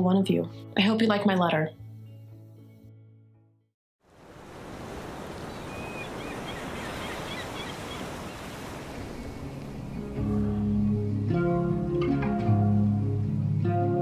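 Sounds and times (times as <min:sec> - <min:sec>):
plucked string music: 0:09.7 - 0:14.0.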